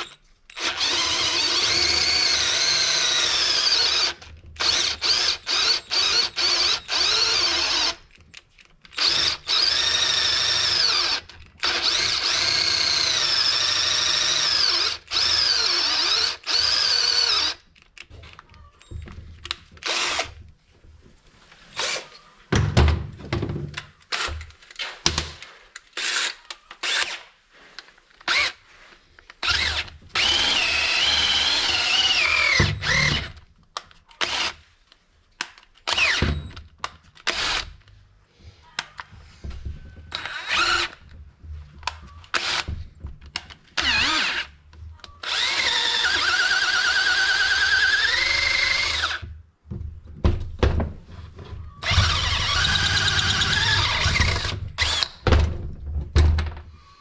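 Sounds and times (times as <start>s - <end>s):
cordless drill whining: 0.0s - 8.2s, 8.9s - 17.6s, 18.9s - 20.4s, 26.0s - 27.3s, 28.2s - 28.6s, 29.4s - 33.4s, 34.2s - 34.6s, 35.9s - 36.6s, 37.3s - 37.7s, 40.1s - 41.2s, 41.8s - 42.8s, 43.8s - 49.3s, 51.8s - 55.2s.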